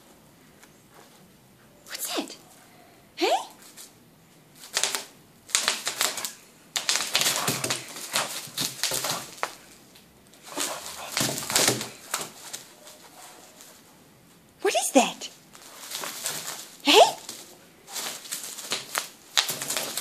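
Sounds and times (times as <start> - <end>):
bubble wrap crinkling and crackling: 4.6 - 13.9, 15.3 - 20.0.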